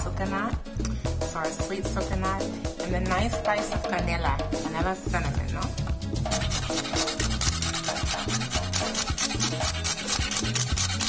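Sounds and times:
background music with bass line: 0:00.0 - 0:11.0
fork scraping metal bowl: 0:06.3 - 0:11.0.

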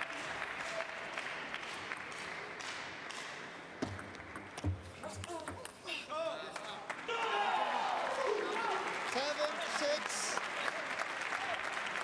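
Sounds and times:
crowd applause: 0:00.0 - 0:03.1, 0:06.5 - 0:12.0.

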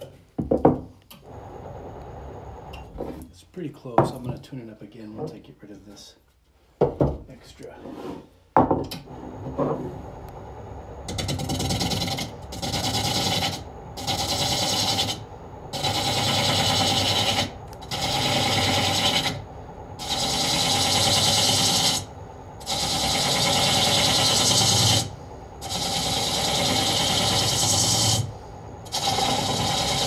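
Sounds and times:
lathe tool cutting wood: 0:11.2 - 0:15.2, 0:15.8 - 0:19.4, 0:20.0 - 0:28.3, 0:28.9 - 0:30.0.

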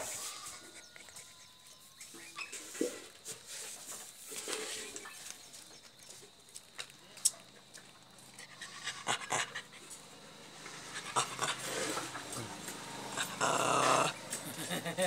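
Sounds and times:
dog panting: 0:08.2 - 0:14.2.

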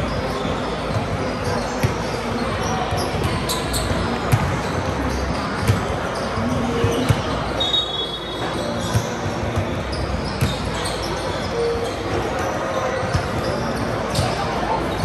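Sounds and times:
hubbub of voices: 0:00.0 - 0:15.0
basketball bouncing on gym floor: 0:04.3 - 0:04.7, 0:05.6 - 0:06.0, 0:06.8 - 0:07.4.

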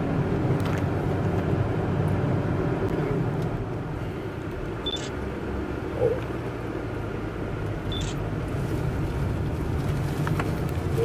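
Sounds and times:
car cabin road hum: 0:00.0 - 0:11.0.

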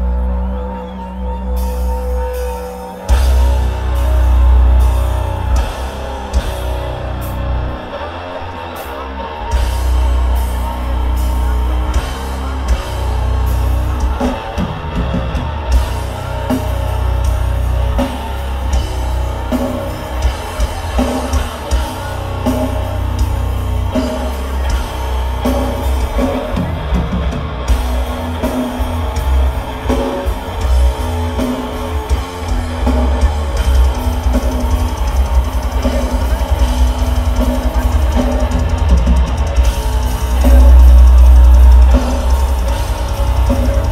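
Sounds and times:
heavy metal band playing live: 0:00.0 - 0:43.9
fast drum strokes: 0:09.5 - 0:43.9.

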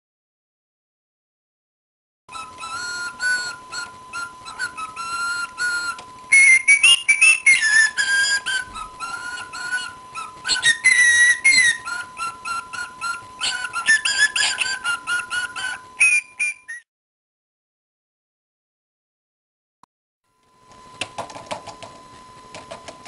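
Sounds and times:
cockatiel whistling and warbling: 0:02.3 - 0:16.8.

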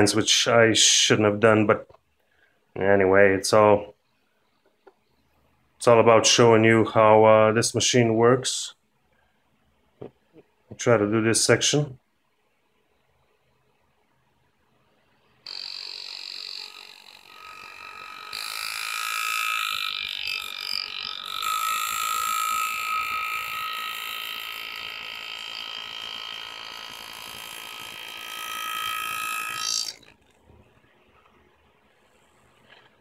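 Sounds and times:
pneumatic engraver hammering buzz: 0:15.5 - 0:30.2.

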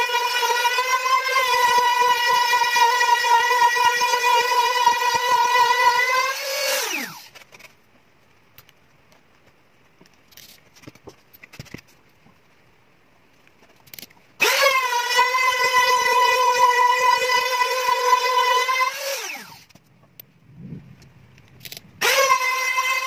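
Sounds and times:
trim router whining: 0:00.0 - 0:07.3, 0:14.4 - 0:19.7, 0:22.0 - 0:23.0
faint taps and scraping: 0:07.4 - 0:14.3.

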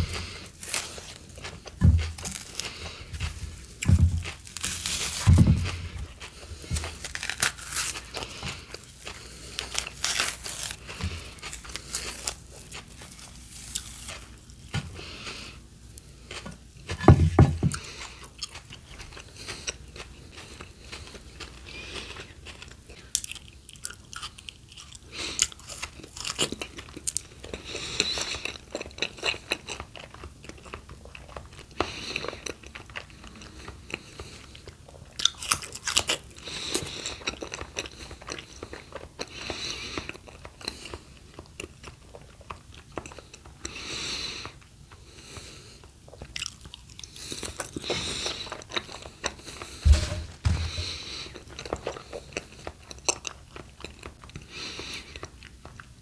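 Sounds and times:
crunching and chewing fruit: 0:00.0 - 0:56.0
low thumps: 0:49.8 - 0:51.0.

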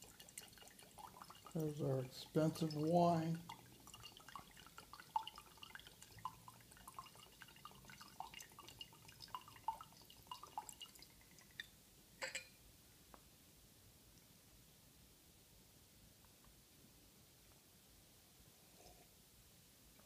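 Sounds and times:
wine dripping into glass: 0:00.0 - 0:12.6.

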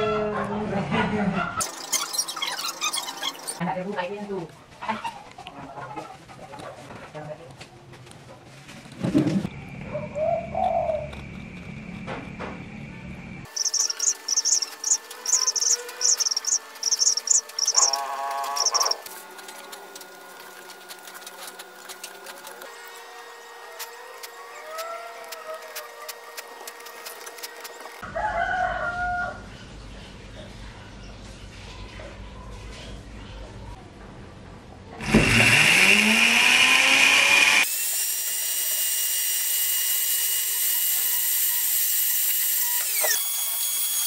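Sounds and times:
bird chirping: 0:01.6 - 0:03.6, 0:13.5 - 0:19.0
soft rising and falling bird calls: 0:01.6 - 0:03.6, 0:13.5 - 0:19.0
lower bird call: 0:13.5 - 0:19.0.

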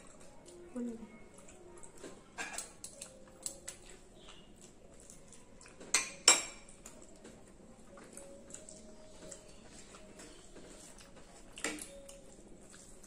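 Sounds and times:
cutlery clinking on plates: 0:02.0 - 0:03.7, 0:05.7 - 0:07.4, 0:10.6 - 0:12.2.

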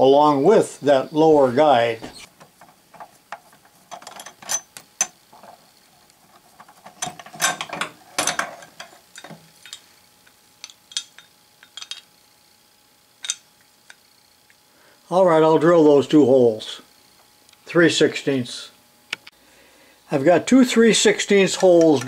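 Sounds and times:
screws and plate clinking on metal: 0:02.2 - 0:09.9, 0:10.6 - 0:12.1, 0:13.2 - 0:13.5, 0:21.5 - 0:22.0.

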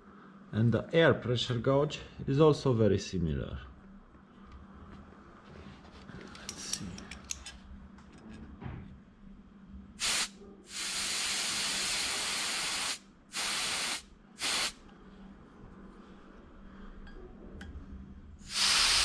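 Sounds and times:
compressed air hissing: 0:10.0 - 0:14.8, 0:18.4 - 0:19.0.

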